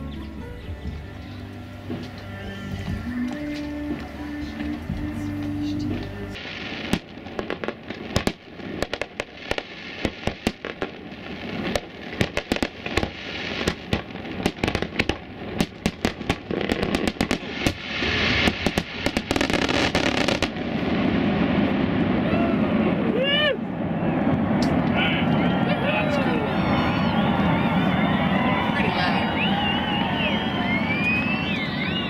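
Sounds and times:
fireworks crackling: 1.4s - 32.0s
fireworks bangs and pops: 2.9s - 22.3s.

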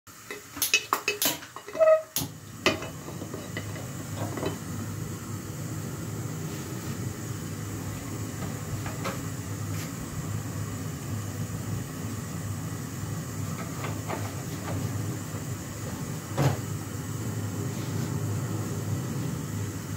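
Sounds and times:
gas burner rumble: 0.1s - 19.9s
metal pot clinking and knocking: 0.3s - 4.6s.

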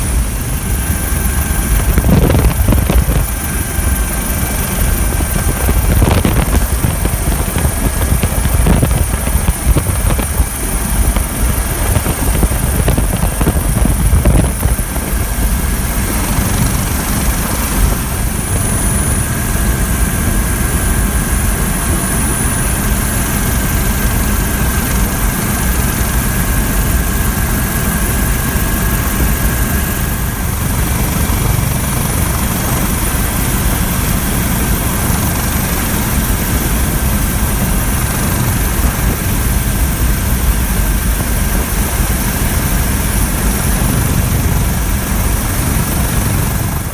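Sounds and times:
helicopter rotor and turbine din: 0.0s - 46.9s.

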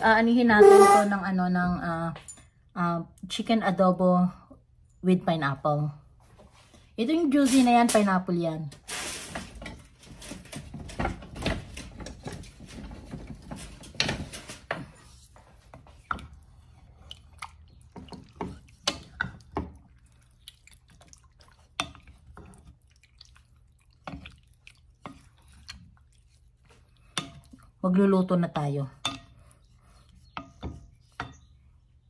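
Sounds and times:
wet sloshing of chicken in marinade: 16.4s - 27.8s.

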